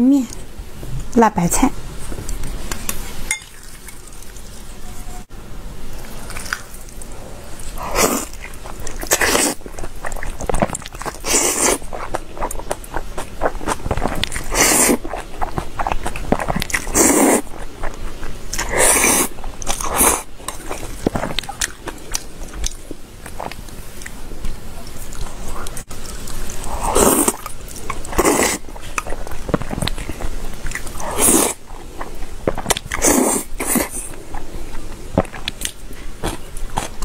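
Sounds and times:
chewing: 6.0s - 37.0s
loud noodle slurps: 7.7s - 10.3s, 11.2s - 11.9s, 14.3s - 15.2s, 16.6s - 17.5s, 18.6s - 20.3s, 26.6s - 29.0s, 30.8s - 31.6s, 32.5s - 34.1s.

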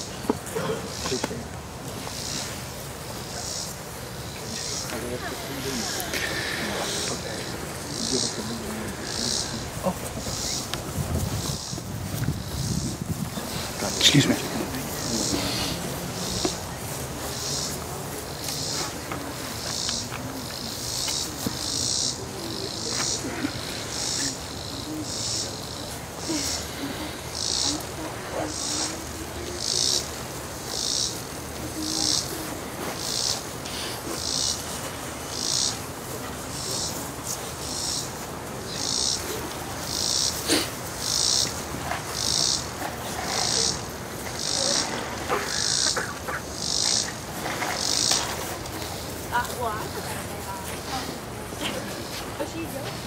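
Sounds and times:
insects buzzing in pulses: 0.0s - 53.0s.

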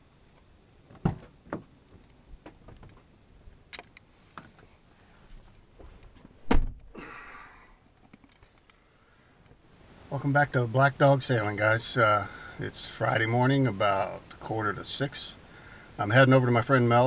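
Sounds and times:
car door shutting: 6.4s - 6.9s.

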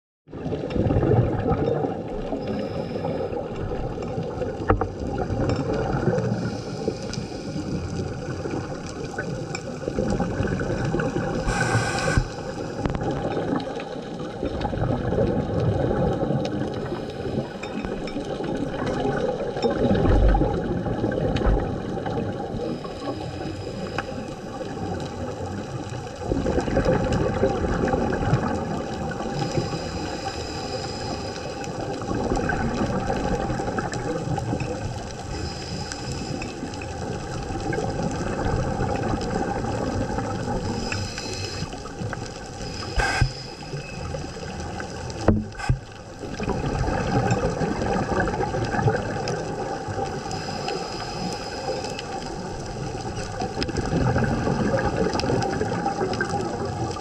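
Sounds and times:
scuba bubbles gurgling underwater: 0.3s - 57.0s
brief hiss: 11.5s - 12.5s, 42.7s - 44.1s.

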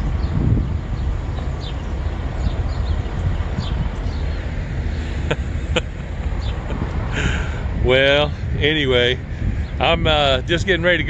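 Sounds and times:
highway traffic rumble: 0.0s - 11.0s
bird chirps: 0.2s - 5.1s.

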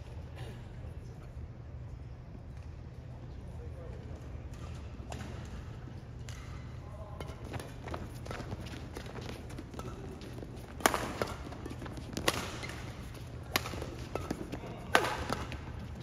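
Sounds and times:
racket hitting shuttlecock: 6.2s - 16.0s.

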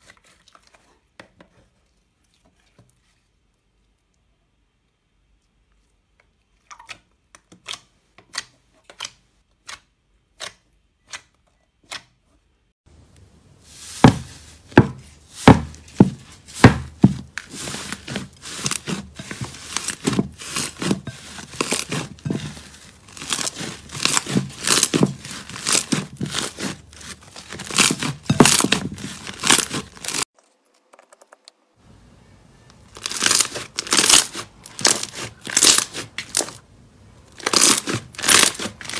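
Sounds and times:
slime crackling and popping: 17.2s - 31.4s, 32.9s - 36.6s, 37.3s - 38.9s.

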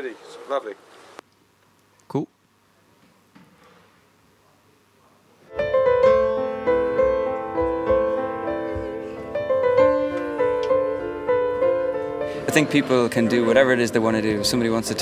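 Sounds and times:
grand piano chords: 5.5s - 15.0s.

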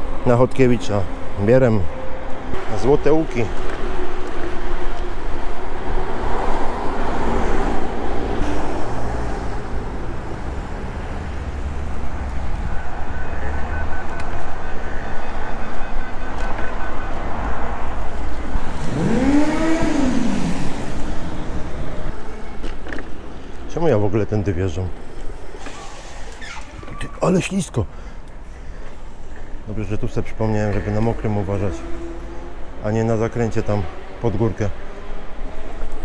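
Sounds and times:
tyres on wet pavement: 24.9s - 29.7s.

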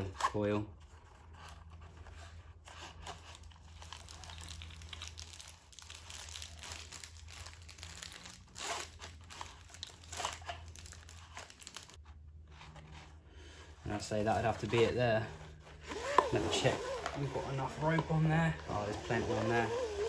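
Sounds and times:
pull rope rewinding onto starter: 15.8s - 20.0s.

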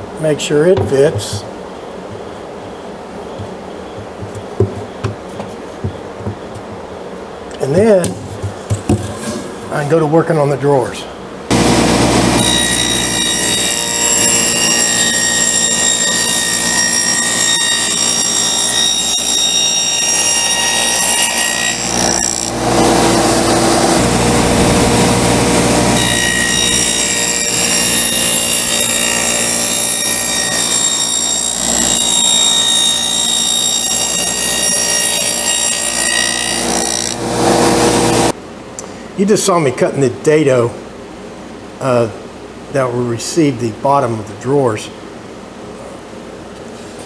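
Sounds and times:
table saw cutting wood: 11.5s - 38.4s.

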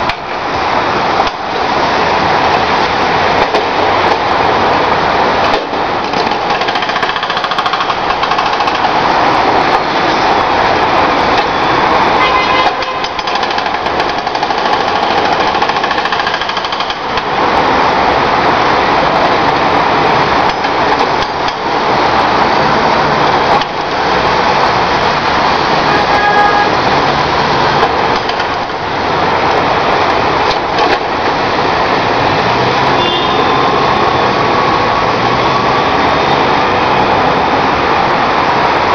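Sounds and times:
hydraulic breaker hammering asphalt: 6.1s - 9.0s, 12.8s - 17.3s.

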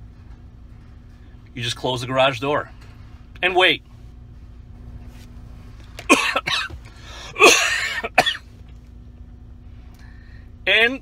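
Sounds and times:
low hum: 0.0s - 11.0s
man coughing: 6.0s - 8.5s.

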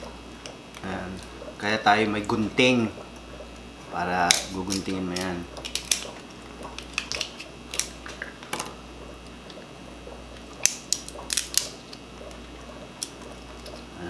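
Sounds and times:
shell cracking and crackling: 4.2s - 9.6s, 10.3s - 13.9s
scissors snipping shell: 4.3s - 6.2s.

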